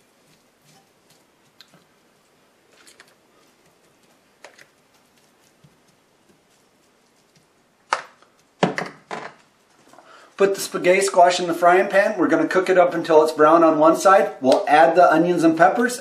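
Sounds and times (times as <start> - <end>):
soft taps and pats of food: 3.4 - 7.6.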